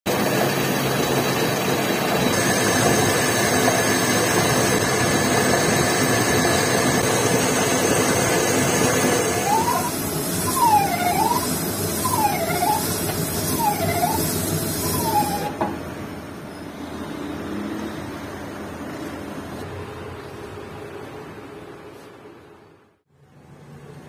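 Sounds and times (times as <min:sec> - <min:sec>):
high whine: 0:00.1 - 0:15.6
metal lathe whirring: 0:00.1 - 0:15.7
wavering tone: 0:09.2 - 0:15.6.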